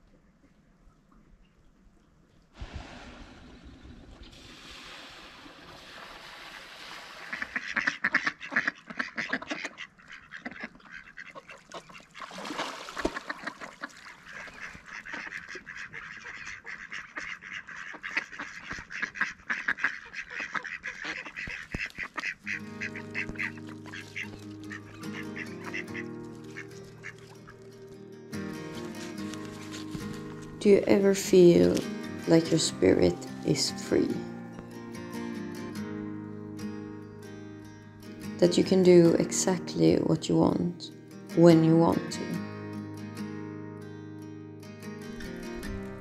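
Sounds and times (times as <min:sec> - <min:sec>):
ducks quacking: 0:07.2 - 0:28.0
music: 0:22.4 - 0:46.0.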